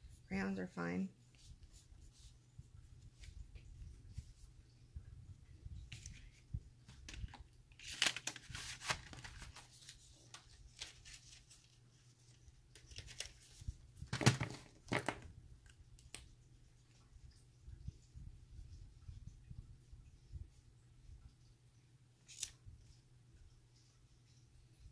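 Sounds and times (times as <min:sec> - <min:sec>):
paper rustling and crinkling: 0:05.8 - 0:15.2, 0:22.2 - 0:22.6.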